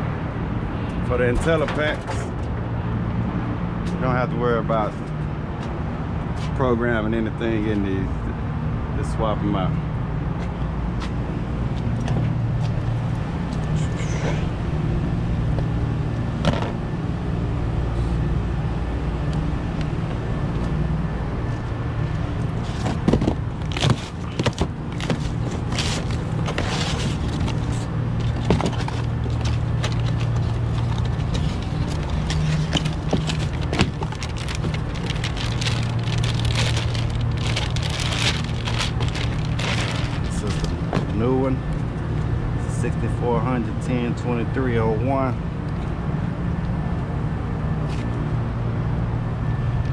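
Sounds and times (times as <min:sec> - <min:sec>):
hvac equipment humming: 0:10.6 - 0:44.2
packing clicks and crackling: 0:22.7 - 0:41.1
foil bag crinkling: 0:23.6 - 0:40.8.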